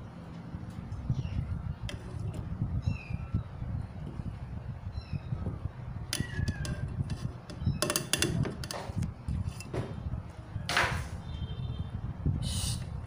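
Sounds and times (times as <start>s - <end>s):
scraping rustle: 1.8s - 2.8s, 6.1s - 10.0s
plastic blender knocks and clicks: 6.1s - 9.0s.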